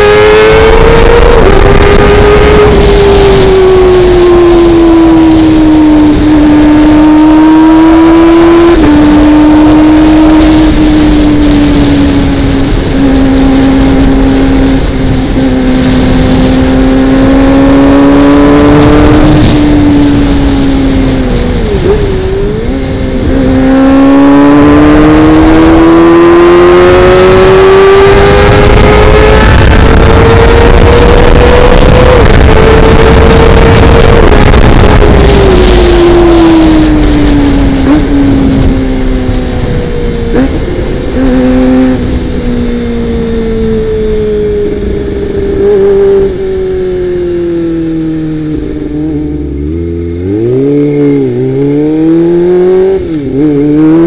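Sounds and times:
motorcycle engine high-revving: 0.0s - 54.0s.

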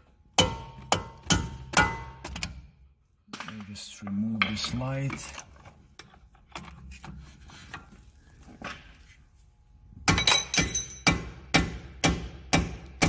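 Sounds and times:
hammer striking steel bolt: 0.4s - 2.6s
light tool clinks: 10.2s - 11.1s.

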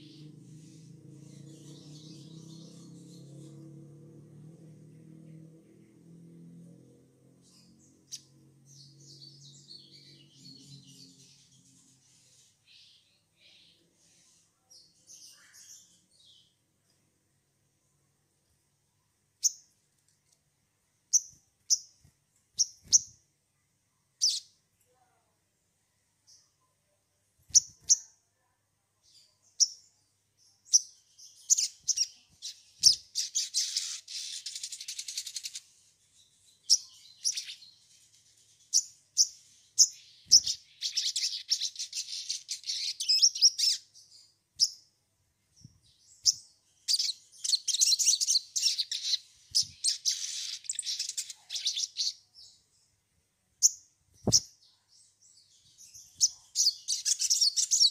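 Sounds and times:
bird chirping and chattering: 24.2s - 24.5s, 30.7s - 35.7s, 36.6s - 37.8s, 38.5s - 43.8s, 46.2s - 52.2s, 53.6s - 54.6s, 55.8s - 57.9s.

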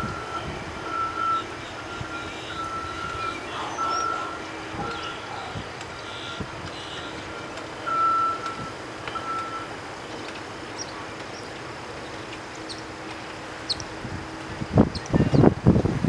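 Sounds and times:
vehicle reversing alarm beeps: 0.0s - 10.9s
warbler chip notes: 0.0s - 11.5s
engine hum: 0.0s - 16.0s.

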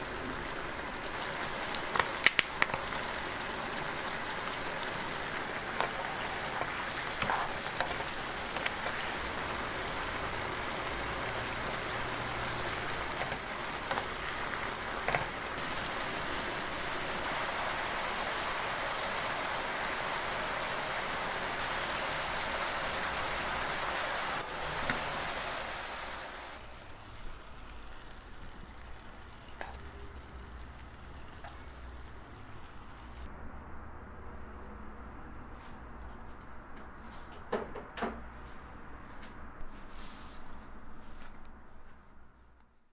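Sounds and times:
sauce bubbling and sizzling in wok: 0.0s - 33.3s
small pops: 1.7s - 3.0s.

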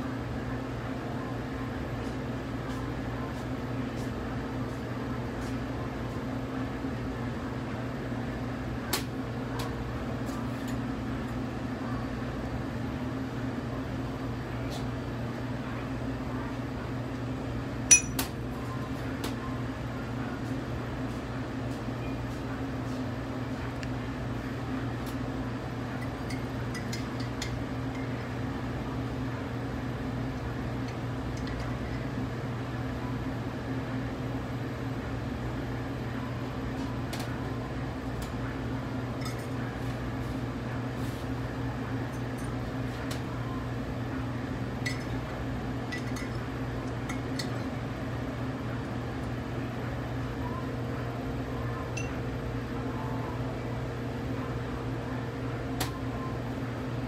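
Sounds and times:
steady low background hum: 0.0s - 57.0s
metal spoon clicking on mug: 17.9s - 18.3s.

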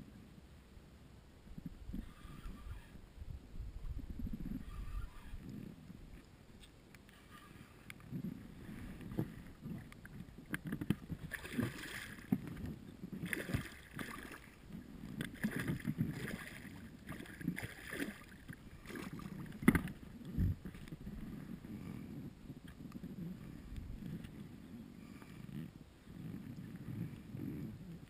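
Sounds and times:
water splashing and sloshing: 7.1s - 22.0s.

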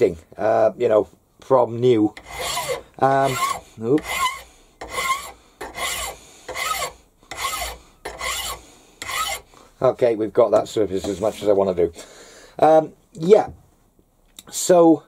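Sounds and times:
hand file rasping on metal: 2.1s - 9.5s.

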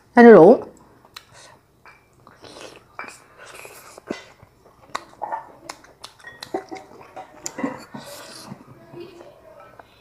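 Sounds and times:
chewing with wet mouth smacks: 2.1s - 8.6s.

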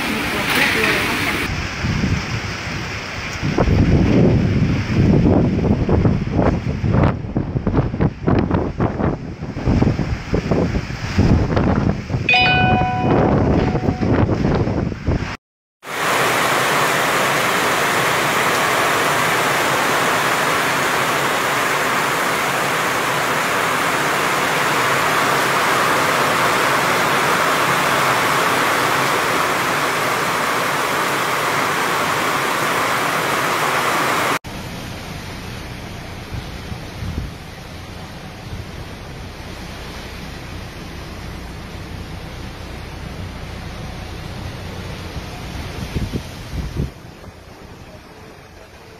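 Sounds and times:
heavy rain on plants: 0.0s - 7.0s, 15.8s - 48.9s
gusting wind: 0.0s - 48.9s.

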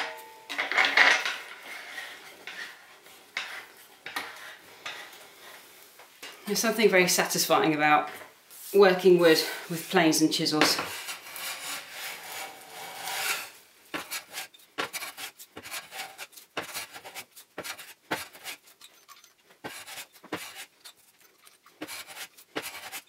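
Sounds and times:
hand plane shaving wood: 11.0s - 23.0s.

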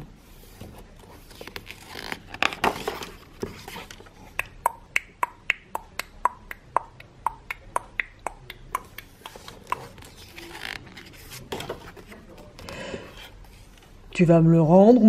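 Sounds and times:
book page turning: 0.3s - 4.2s, 8.9s - 13.9s.

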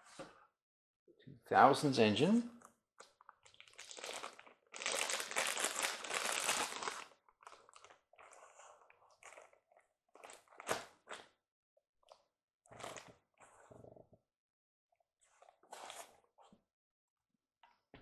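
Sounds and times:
packaging crinkling: 3.4s - 8.0s.

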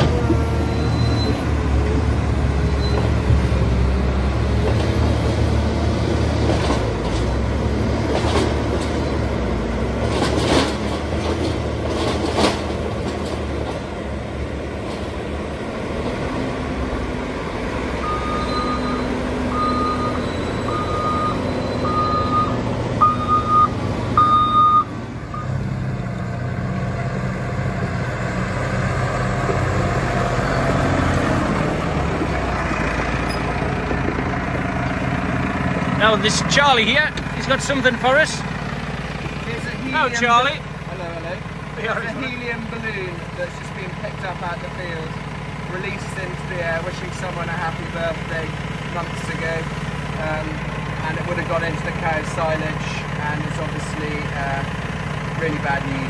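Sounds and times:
diesel loader engine running hard: 0.0s - 56.0s
low engine humming: 0.0s - 56.0s
reversing alarm beeping: 0.6s - 1.6s, 18.0s - 25.6s.

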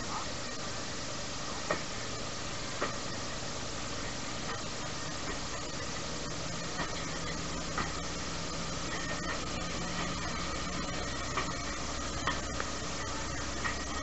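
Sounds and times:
train carriage rumble and rattle: 0.0s - 14.0s
wheels clacking over rails: 4.0s - 14.0s.

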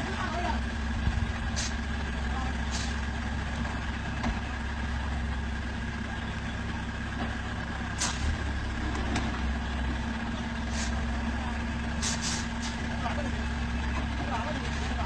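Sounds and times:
truck engine at low revs: 0.0s - 15.0s
short hisses: 8.0s - 8.3s, 12.0s - 12.8s.

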